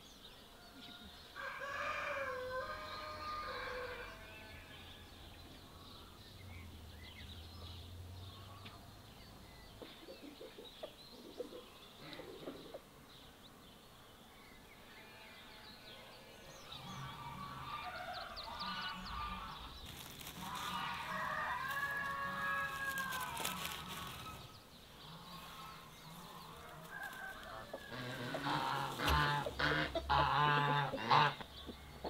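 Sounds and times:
rooster crowing and clucking: 1.0 - 4.6, 17.0 - 31.4
small birds chirping: 2.8 - 32.0
grass rustling and crackling: 18.4 - 31.3.

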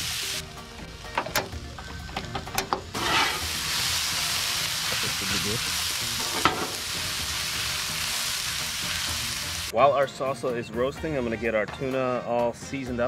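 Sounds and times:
food sizzling on griddle: 0.0 - 9.7
metal spatula stirring: 2.9 - 3.6.

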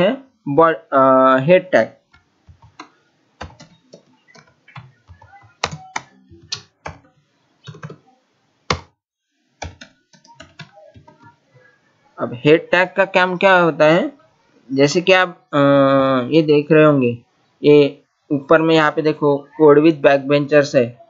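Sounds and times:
keyboard typing: 2.1 - 8.0, 8.7 - 8.9, 9.6 - 11.4.

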